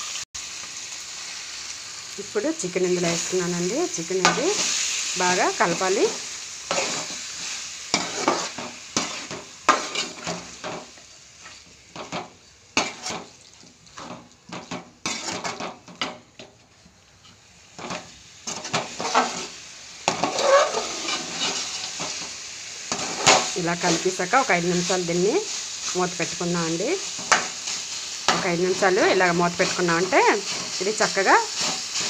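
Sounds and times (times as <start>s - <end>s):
food sizzling: 0.0s - 32.0s
spoon scraping metal pan: 5.7s - 16.5s, 17.2s - 24.9s.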